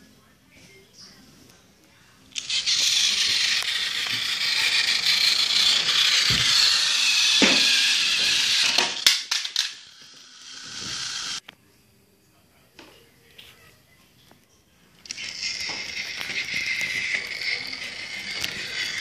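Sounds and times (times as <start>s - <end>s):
toy falling on tile floor: 2.4s - 11.4s, 15.0s - 19.0s
toy train motor whirring: 2.4s - 11.4s, 15.0s - 19.0s.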